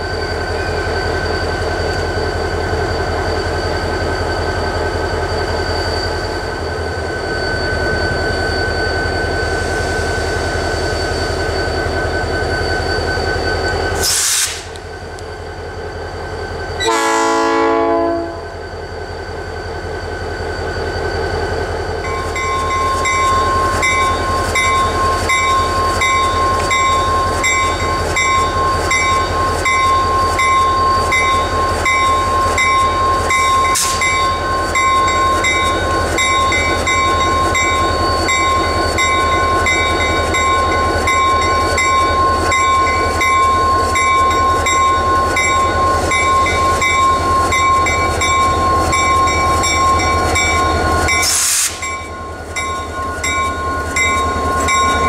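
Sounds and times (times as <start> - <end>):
diesel locomotive engine running: 0.0 - 55.0
air hiss: 14.0 - 14.8, 33.8 - 34.1, 51.2 - 51.8
train horn blast: 16.8 - 18.5
bell ringing: 22.0 - 55.0.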